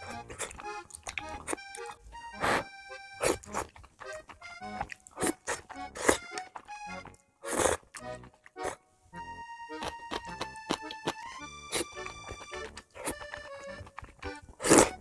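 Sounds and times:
noodles being slurped: 0:00.0 - 0:06.8, 0:07.4 - 0:08.8, 0:09.8 - 0:15.0
light background music: 0:04.4 - 0:15.0.

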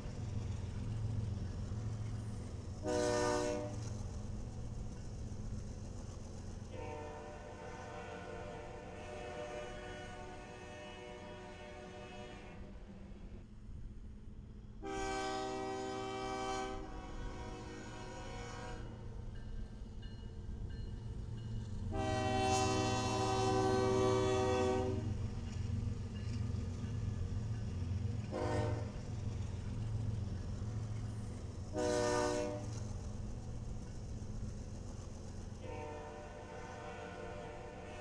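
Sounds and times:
locomotive horn blasts: 0:02.8 - 0:03.7, 0:06.8 - 0:12.6, 0:14.8 - 0:18.9, 0:21.9 - 0:25.1, 0:28.3 - 0:28.9, 0:31.7 - 0:32.7, 0:35.6 - 0:38.0
locomotive engine rumble: 0:16.1 - 0:37.9.

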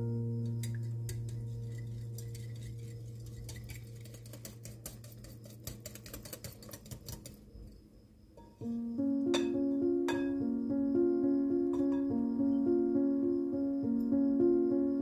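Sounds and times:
low piano note: 0:00.0 - 0:02.2, 0:08.6 - 0:15.0
whisk clicking against glass bowl: 0:01.1 - 0:07.4.

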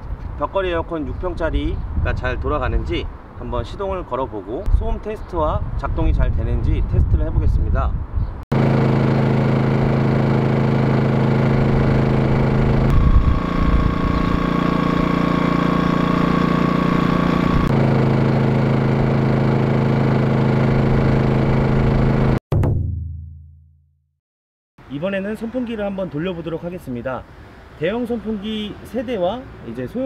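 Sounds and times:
portable generator engine running: 0:08.5 - 0:22.4.

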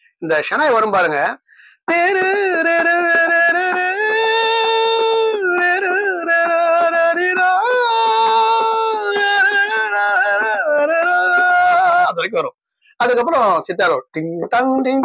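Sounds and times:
man singing wordless melody: 0:00.2 - 0:15.0.

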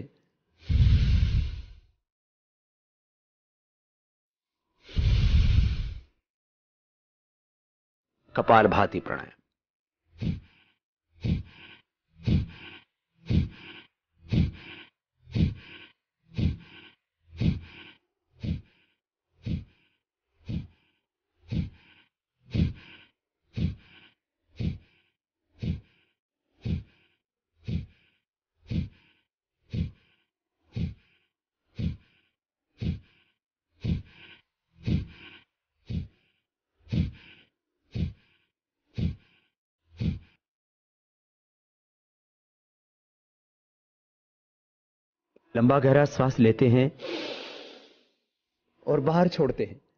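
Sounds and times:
forceful exhalations through nose: 0:00.6 - 0:01.9, 0:04.8 - 0:06.2, 0:10.2 - 0:40.4, 0:47.0 - 0:48.1.

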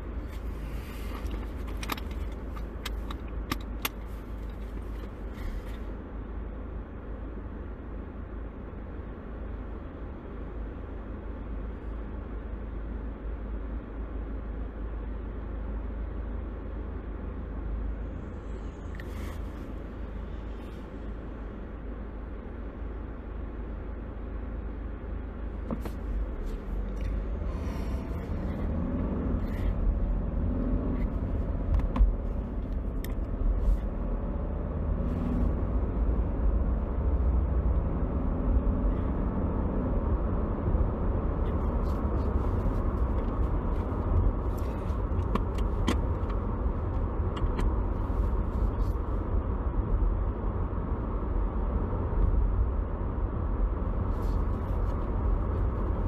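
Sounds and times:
car engine and road rumble: 0:00.0 - 0:56.0
light clicks and rattles: 0:01.1 - 0:05.8.

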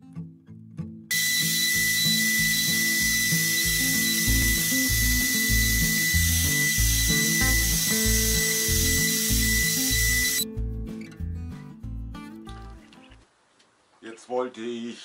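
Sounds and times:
router whining and cutting wood: 0:01.1 - 0:10.4
music with plucked low notes: 0:10.4 - 0:13.2.

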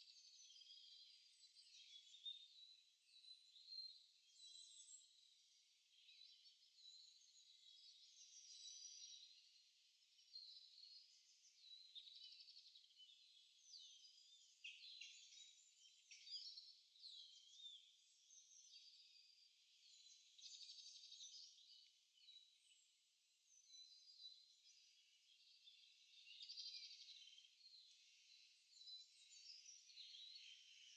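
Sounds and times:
songbirds singing: 0:00.0 - 0:30.9.

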